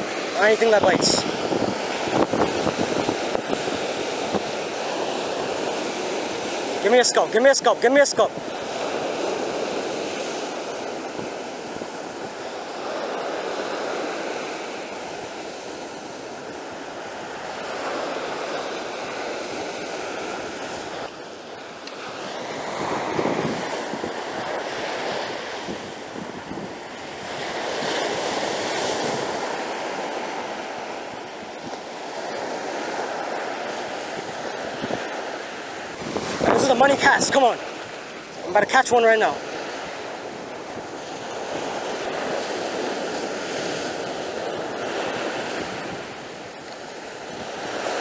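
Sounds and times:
wind buffeting microphone: 0.0s - 6.9s, 22.1s - 38.8s, 39.5s - 48.0s
surf breaking on sandy shore: 0.0s - 48.0s.

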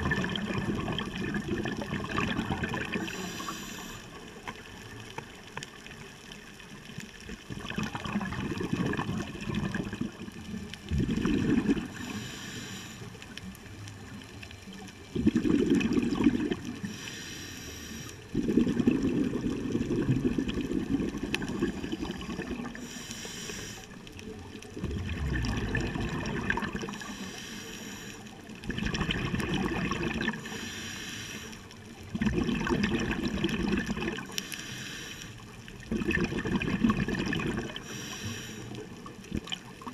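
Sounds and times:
gurgling exhaust bubbles: 0.0s - 3.3s, 7.4s - 12.2s, 15.1s - 16.9s, 18.3s - 22.9s, 24.4s - 27.2s, 28.6s - 30.5s, 32.0s - 34.4s, 35.8s - 38.0s
regulator hiss on inhale: 2.9s - 4.5s, 11.9s - 13.5s, 16.7s - 18.4s, 21.6s - 24.2s, 26.8s - 28.6s, 30.3s - 31.9s, 34.2s - 35.7s, 37.7s - 39.1s.

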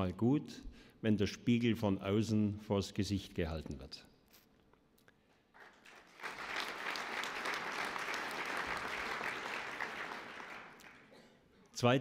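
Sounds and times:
audience applauding: 5.6s - 11.1s.

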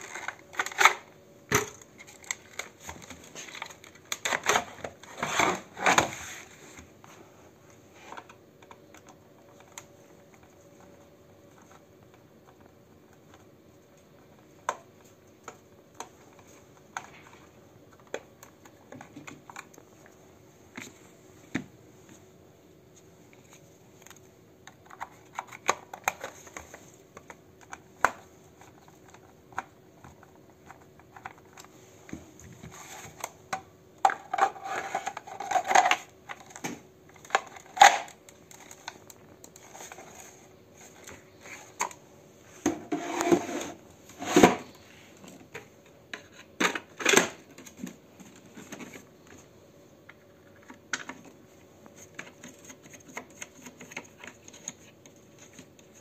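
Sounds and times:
plastic parts clicking and knocking: 0.0s - 6.1s, 24.0s - 42.0s, 52.0s - 56.0s.

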